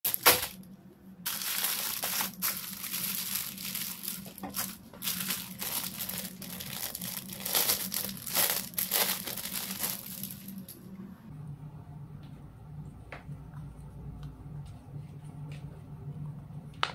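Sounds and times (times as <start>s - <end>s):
plastic bags crinkling: 0.1s - 0.6s, 1.3s - 10.8s.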